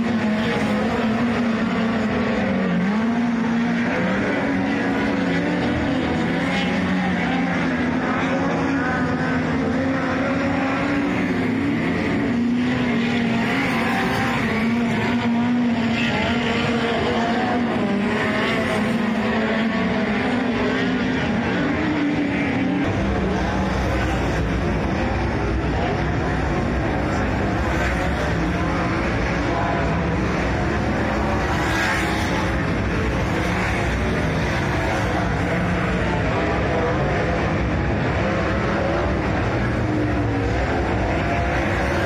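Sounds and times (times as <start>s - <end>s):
race car engine: 0.0s - 42.0s.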